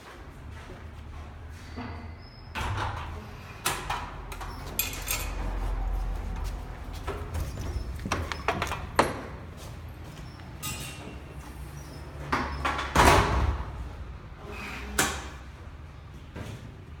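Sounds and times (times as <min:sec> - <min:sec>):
footsteps: 0:00.0 - 0:01.8, 0:05.3 - 0:11.6.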